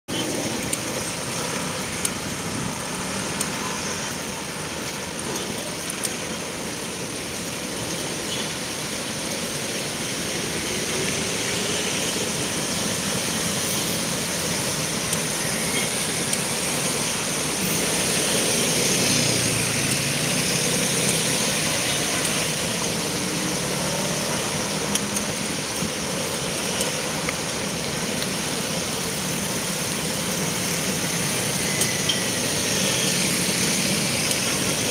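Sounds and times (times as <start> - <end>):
road and wind noise: 0.1 - 34.9
car and truck engines: 7.4 - 34.9.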